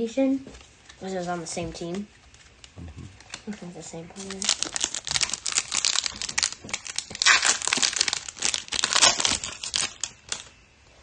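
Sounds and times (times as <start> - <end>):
wrapper crinkling and tearing: 1.9 - 10.6.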